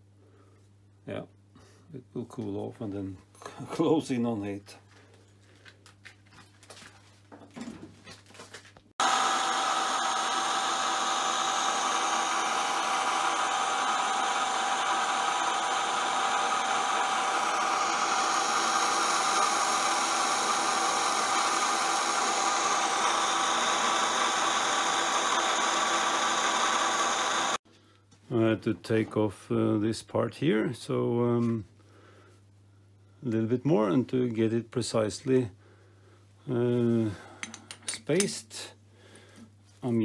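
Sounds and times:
metal lathe whining: 9.0s - 27.6s.

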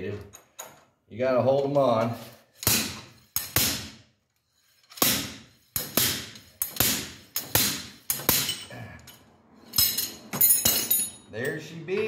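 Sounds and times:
slide hammer metallic strikes: 2.6s - 4.0s, 4.9s - 8.7s.

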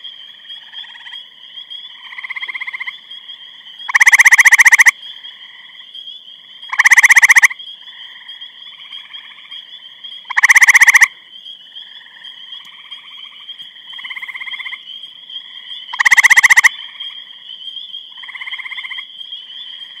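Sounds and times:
frog trilling: 3.8s - 5.7s, 6.7s - 11.2s, 15.4s - 17.3s, 18.1s - 19.1s.

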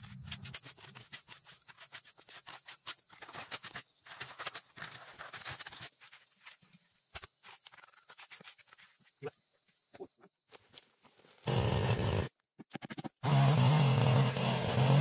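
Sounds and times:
trowel scraping wet mortar: 0.0s - 5.9s.

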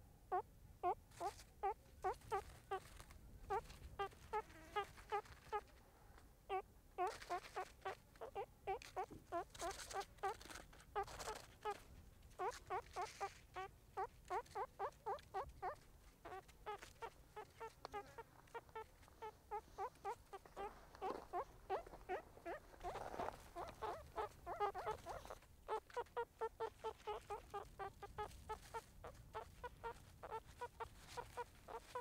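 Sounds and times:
harsh raspy meerkat calls: 0.3s - 5.7s, 6.5s - 32.0s
meerkats chirping: 0.3s - 5.7s, 6.5s - 32.0s.

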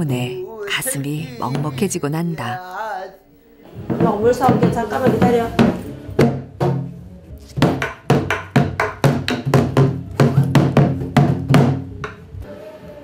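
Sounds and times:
barrel drum struck with stick: 7.6s - 12.2s.

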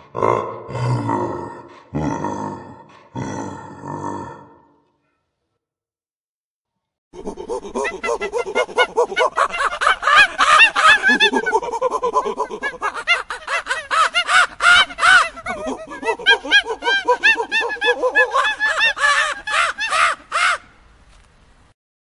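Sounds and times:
monkeys calling: 7.2s - 20.6s.

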